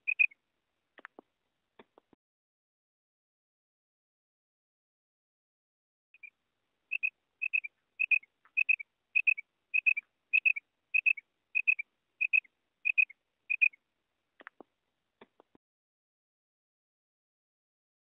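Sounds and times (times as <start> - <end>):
quail calling: 0.0 - 0.4, 6.9 - 13.8.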